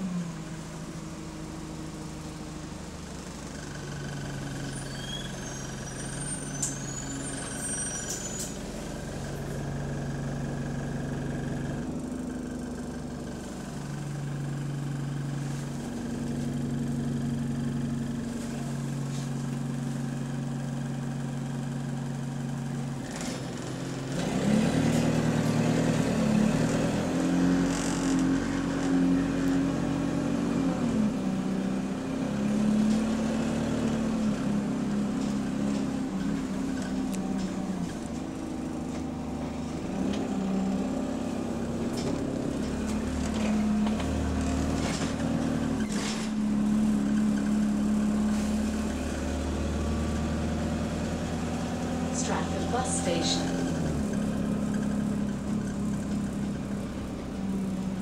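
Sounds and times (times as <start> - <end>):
bus engine humming: 0.0 - 58.0
short high squeaks: 4.6 - 8.7.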